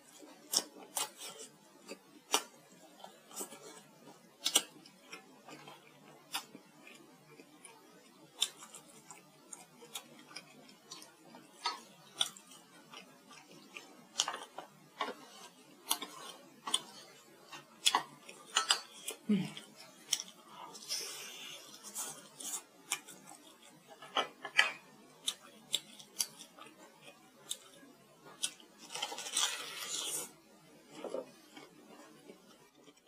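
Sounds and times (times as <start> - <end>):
chewing and lip-smacking: 0.1 - 21.1.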